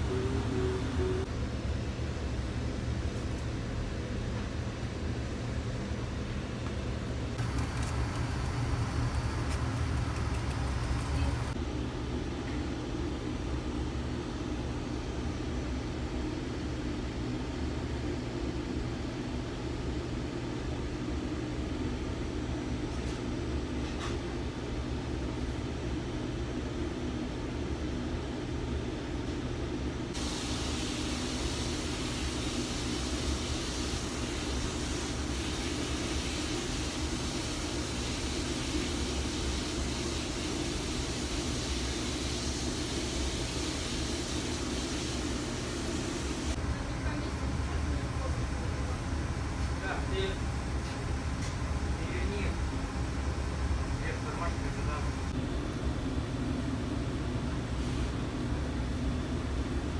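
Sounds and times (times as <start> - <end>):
low machine hum: 0.0 - 30.2
background hiss: 7.4 - 11.6, 30.2 - 46.6.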